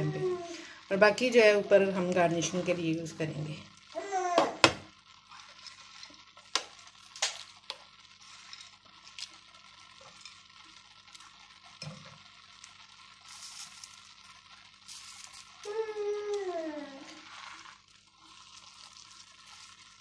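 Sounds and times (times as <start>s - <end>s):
faint sizzle of syrup: 0.0s - 20.0s
spatula stirring in a pan: 3.8s - 20.0s.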